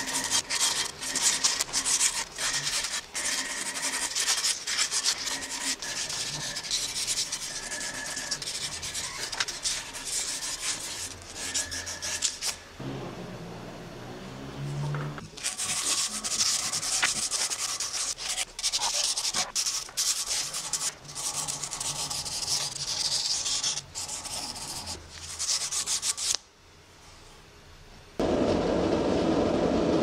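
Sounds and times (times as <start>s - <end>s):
abrasive cloth rasping on metal: 0.0s - 12.6s.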